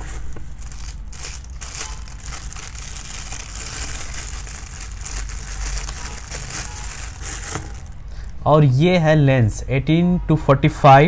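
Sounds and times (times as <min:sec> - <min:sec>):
plastic bag crinkling: 0:00.0 - 0:08.4
steady low rumble: 0:00.0 - 0:10.2.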